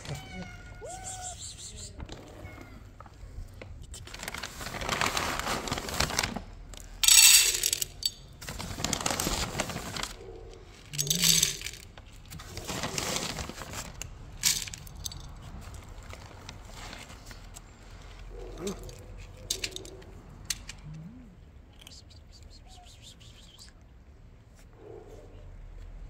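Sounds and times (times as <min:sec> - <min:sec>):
kibble rattling in metal bowl: 0:07.0 - 0:10.2, 0:10.9 - 0:15.6.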